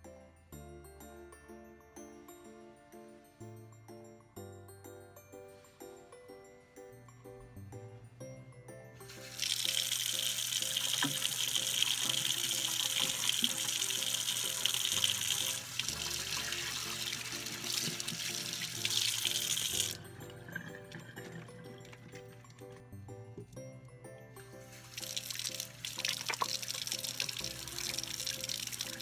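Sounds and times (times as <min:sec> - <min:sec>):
background music: 0:00.0 - 0:29.0
hands wetting soap: 0:09.1 - 0:22.8, 0:24.7 - 0:29.0
tap running into sink: 0:10.6 - 0:15.6, 0:16.3 - 0:20.0, 0:25.8 - 0:29.0.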